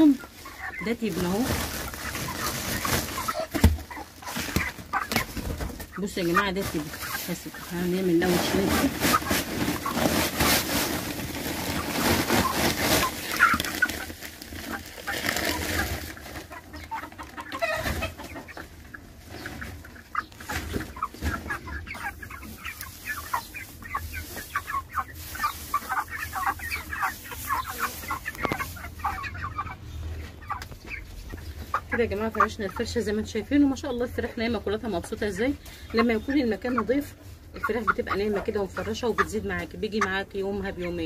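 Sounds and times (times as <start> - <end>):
dry straw rustling: 0.0 - 29.8
chickens clucking: 0.0 - 41.0.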